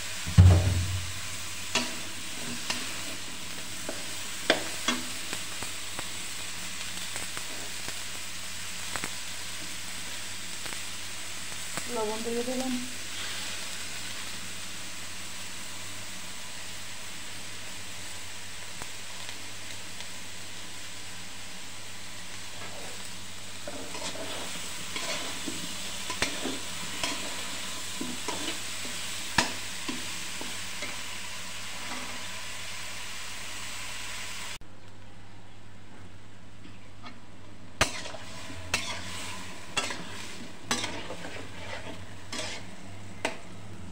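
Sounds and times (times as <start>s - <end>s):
vegetables sizzling in oil: 0.0s - 34.6s, 37.0s - 43.9s
metal spatula scraping pan: 37.8s - 43.4s.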